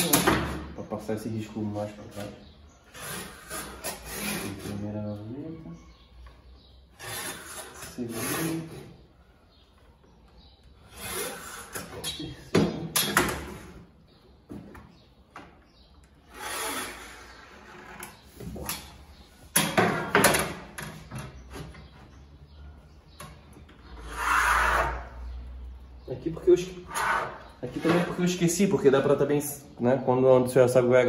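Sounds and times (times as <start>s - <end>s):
wooden strip scraping on panel: 2.1s - 4.9s, 7.0s - 8.9s, 16.2s - 19.0s, 23.9s - 25.2s, 26.8s - 28.2s.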